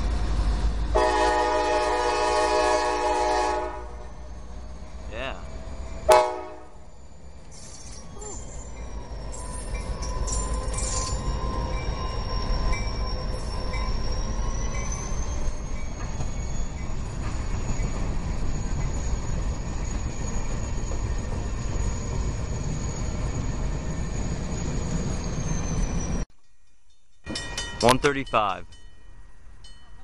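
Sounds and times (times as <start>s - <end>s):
freight train rumbling past: 0.0s - 26.2s
high-pitched wheel squeal: 6.8s - 26.2s.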